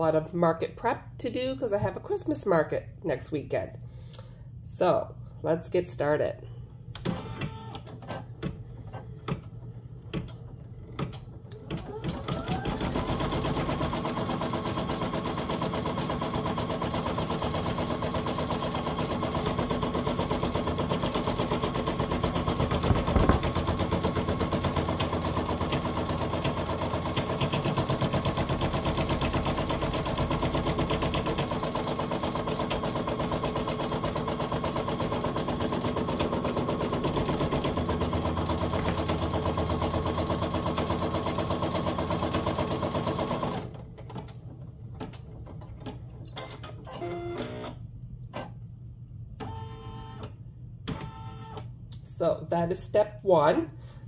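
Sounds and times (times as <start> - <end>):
machine motor hum: 19.8 - 27.6.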